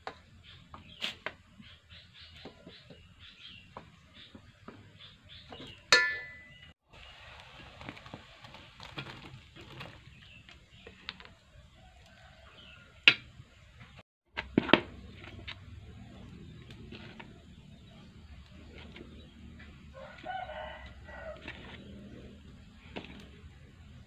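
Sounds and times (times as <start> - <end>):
metal ladle clinking on wok: 5.9 - 6.7.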